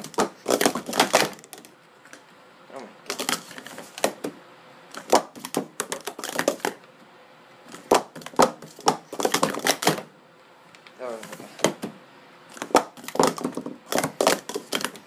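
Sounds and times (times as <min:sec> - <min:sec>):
plastic cups clacking: 0:00.0 - 0:01.8, 0:03.1 - 0:04.3, 0:05.0 - 0:06.8, 0:07.7 - 0:10.1, 0:12.5 - 0:15.0.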